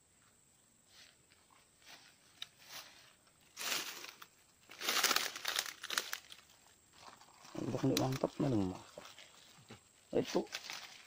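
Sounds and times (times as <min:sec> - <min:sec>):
rustling and crinkling: 0:00.9 - 0:11.0.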